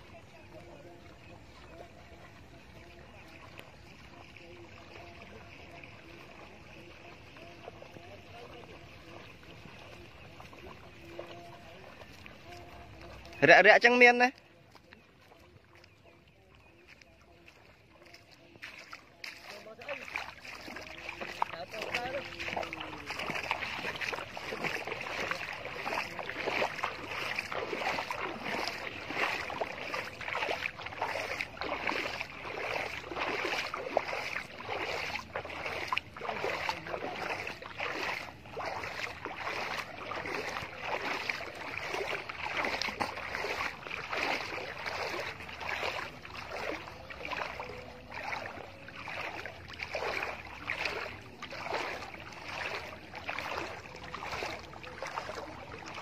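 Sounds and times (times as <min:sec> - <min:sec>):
water sloshing and splashing: 0:00.0 - 0:56.0.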